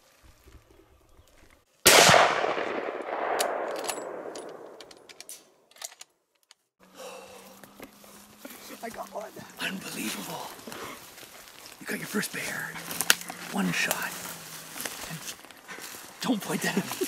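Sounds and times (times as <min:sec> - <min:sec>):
rifle shot: 0:01.9 - 0:05.1.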